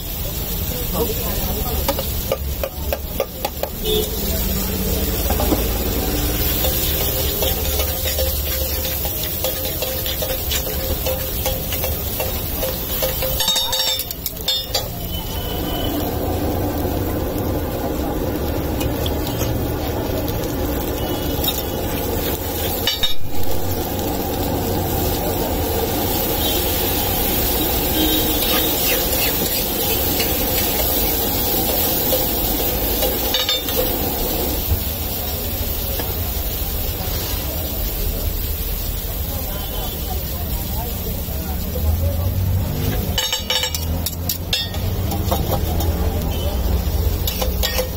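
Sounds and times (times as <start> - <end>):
mixture bubbling and sizzling: 0.0 - 47.9
water poured onto hot griddle: 0.0 - 47.9
metal spatula scraping griddle: 28.1 - 32.3.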